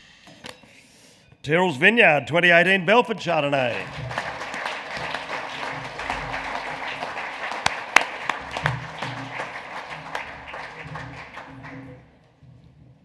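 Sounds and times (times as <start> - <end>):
audience applauding: 3.0 - 12.1.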